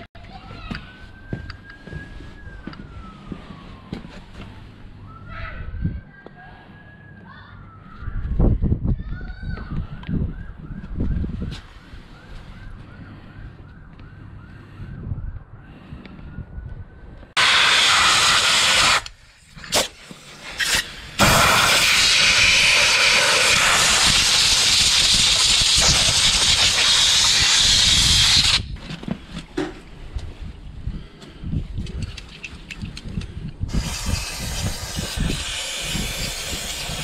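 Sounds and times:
compressed air blow gun hissing: 17.4s - 28.7s, 33.7s - 37.0s.

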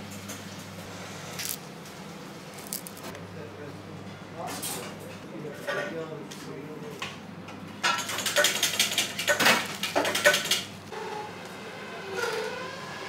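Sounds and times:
rapid rattling clicks: 7.9s - 10.8s.

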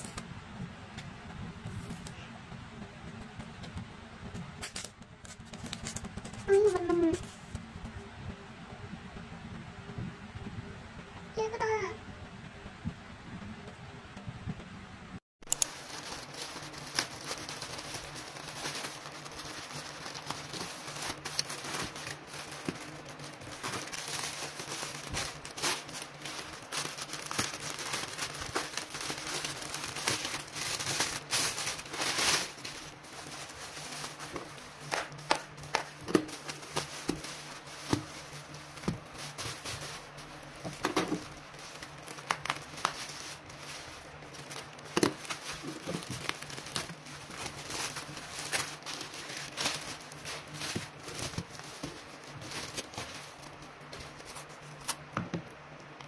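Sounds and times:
plastic and bubble wrap crinkling: 4.6s - 7.6s, 15.5s - 55.5s.

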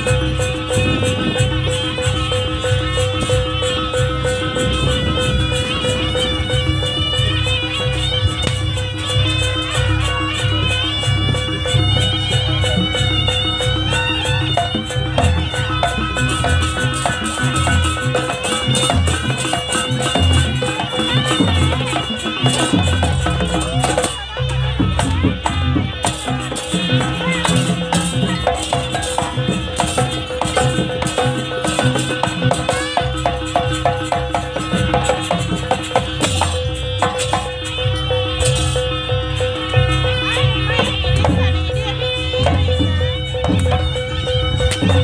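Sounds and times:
drum strokes: 0.0s - 45.0s
rattling percussion: 0.0s - 45.0s.

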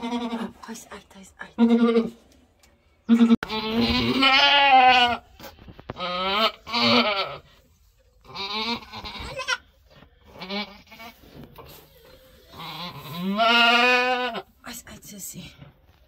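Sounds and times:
goat bleating: 0.0s - 0.6s, 1.6s - 2.2s, 3.1s - 5.3s, 5.9s - 7.5s, 8.2s - 11.3s, 12.5s - 14.5s.

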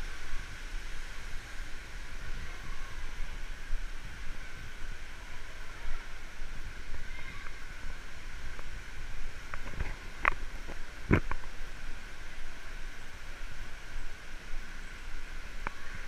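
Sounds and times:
pools and spraying water echoing: 0.0s - 16.0s.

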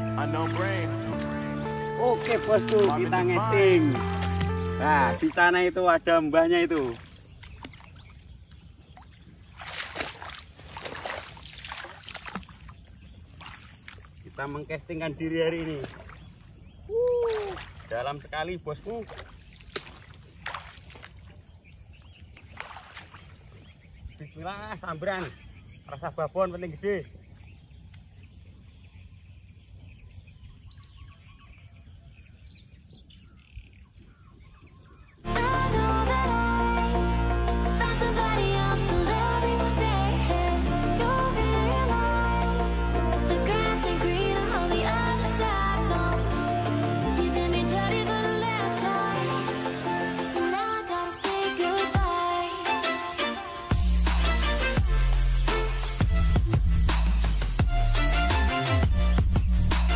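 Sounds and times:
sloshing of swamp water: 0.0s - 24.4s
bird chirps: 20.9s - 35.3s
loud background music: 35.3s - 59.9s.

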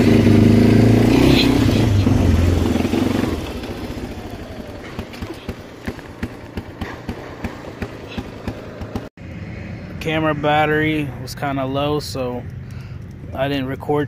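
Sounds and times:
atv engine running: 0.0s - 9.1s.

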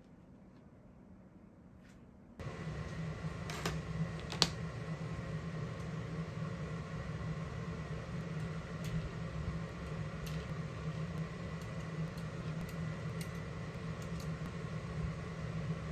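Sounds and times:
low mechanical hum: 0.0s - 15.9s.

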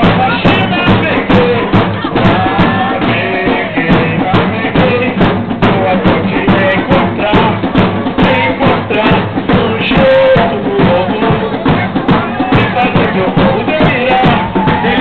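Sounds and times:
steady drum beat: 0.0s - 15.0s
street parade music: 0.0s - 15.0s.

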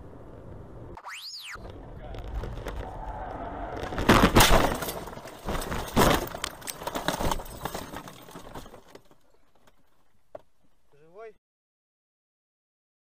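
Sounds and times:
heavy car impact: 3.0s - 9.2s
crunching and rattling: 3.8s - 10.9s.

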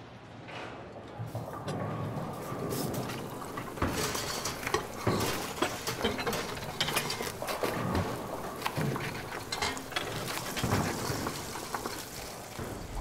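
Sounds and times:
steady background hum: 0.0s - 13.0s
dishes and utensils clattering: 1.3s - 13.0s.

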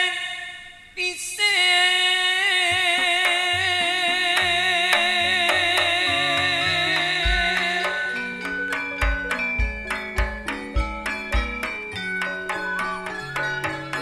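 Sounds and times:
drum strokes: 4.4s - 14.0s
gamelan ensemble music: 4.4s - 14.0s.

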